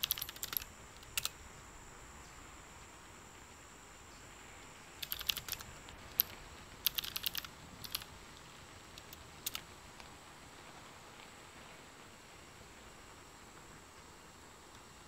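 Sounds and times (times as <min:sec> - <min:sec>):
keyboard key clicks: 0:00.0 - 0:01.4, 0:05.0 - 0:08.1, 0:09.0 - 0:09.6
faint steady hiss: 0:00.0 - 0:15.0.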